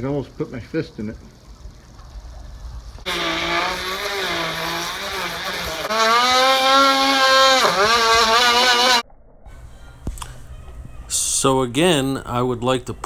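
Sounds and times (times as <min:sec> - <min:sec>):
die grinder cutting wood: 0:03.0 - 0:09.0.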